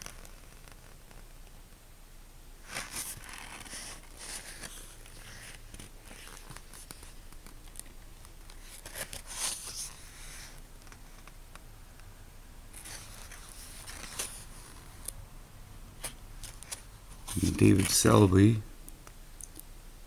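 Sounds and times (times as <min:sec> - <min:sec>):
book pages turning: 0:00.0 - 0:01.4, 0:02.6 - 0:11.4, 0:12.7 - 0:15.2, 0:16.0 - 0:18.5.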